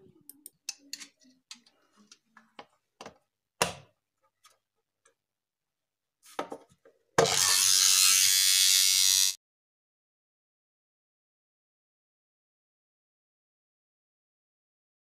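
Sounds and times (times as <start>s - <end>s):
electric alarm buzzing: 7.3s - 9.4s.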